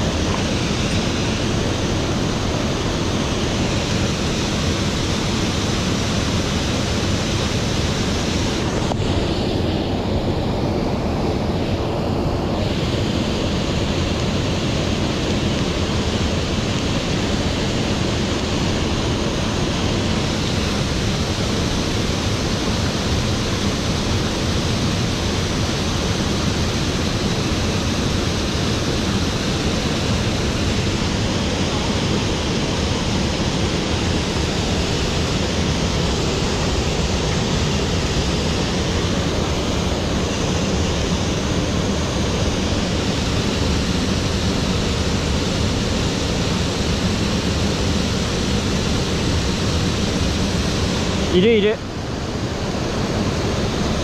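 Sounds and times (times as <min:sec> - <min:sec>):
stream water flowing over rocks: 0:00.0 - 0:54.0.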